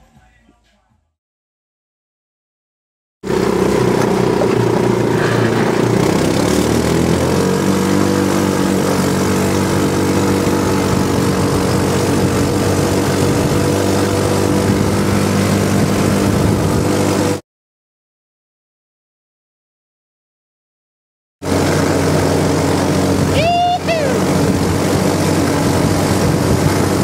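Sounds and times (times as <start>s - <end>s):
buggy engine running: 3.2s - 17.4s, 21.4s - 27.0s.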